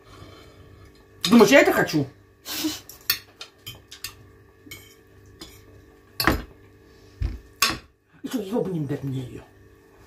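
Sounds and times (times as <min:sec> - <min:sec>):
forks clinking on a plate: 0:03.0 - 0:06.5.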